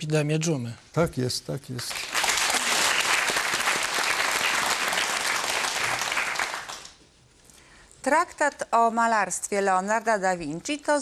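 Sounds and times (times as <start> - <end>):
audience applauding: 1.9 - 7.0.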